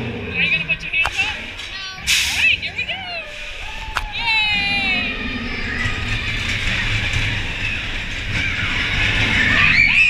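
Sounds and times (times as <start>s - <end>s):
roller coaster clattering on track: 0.0s - 10.0s
riders screaming: 3.5s - 10.0s.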